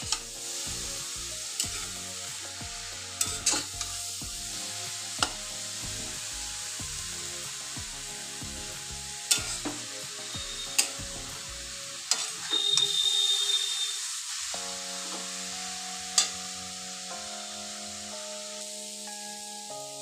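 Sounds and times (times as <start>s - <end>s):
steady sizzle: 0.0s - 20.0s
spatula scraping carrots in pan: 0.1s - 6.2s, 9.2s - 13.0s
spatula clinking on pan: 12.1s - 13.0s, 16.2s - 16.4s.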